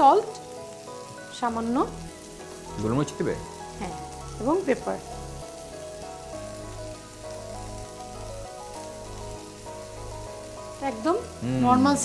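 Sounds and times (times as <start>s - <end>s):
background music of held notes: 0.0s - 12.0s
vegetables sizzling in a frying pan: 0.0s - 12.0s.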